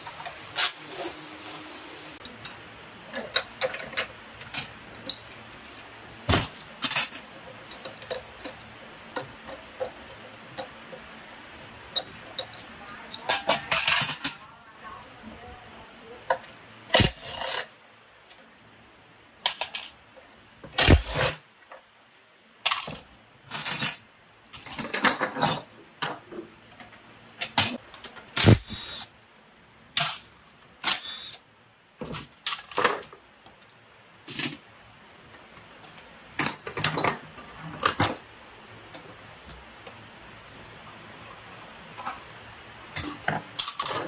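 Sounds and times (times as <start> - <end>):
metal tools clinking: 22.7 - 25.7.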